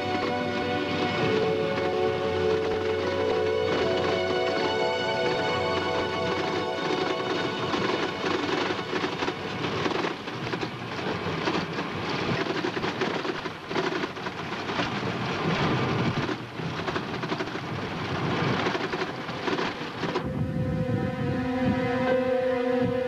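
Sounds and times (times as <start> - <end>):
loud rushing and rumbling noise: 0.0 - 23.0.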